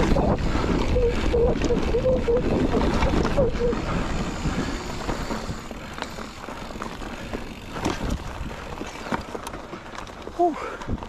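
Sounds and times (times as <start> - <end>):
wind rushing over microphone: 0.0 - 5.9
bike clicks and rattles: 0.0 - 11.0
bike tyres on dirt: 0.0 - 11.0.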